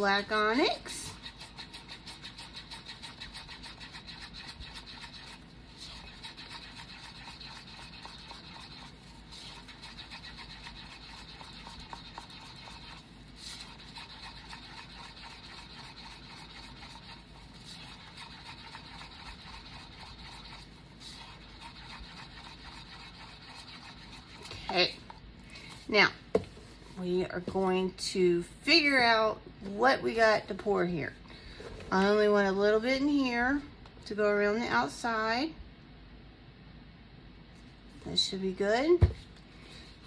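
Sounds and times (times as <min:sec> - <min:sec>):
stir stick scraping paper cup: 0:00.0 - 0:25.2.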